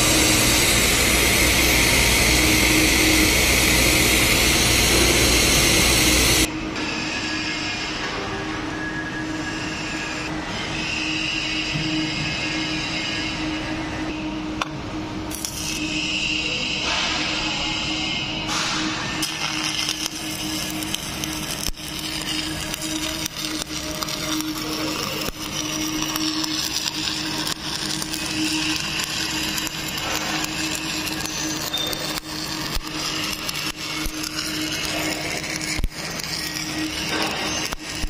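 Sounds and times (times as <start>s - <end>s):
welding arc crackling and hissing: 0.0s - 6.5s, 15.3s - 38.0s
low hum: 0.0s - 7.2s.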